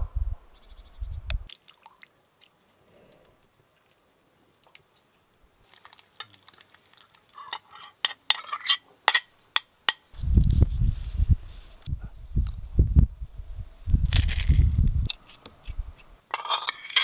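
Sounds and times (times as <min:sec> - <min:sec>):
metal spoon clinking on bowl: 0:07.5 - 0:10.0, 0:16.3 - 0:17.0.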